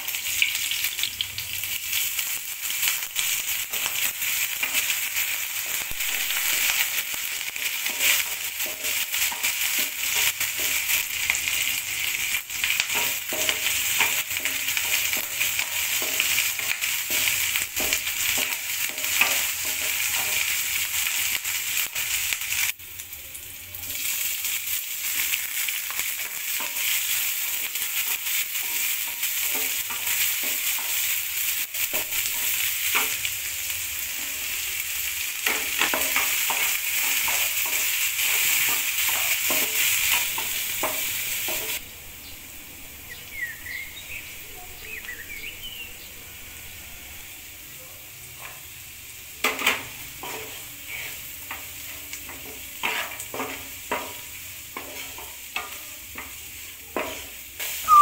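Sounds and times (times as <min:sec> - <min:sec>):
garlic sizzling in hot oil: 0:00.0 - 0:58.0
wooden spatula scraping and tapping: 0:49.4 - 0:57.3.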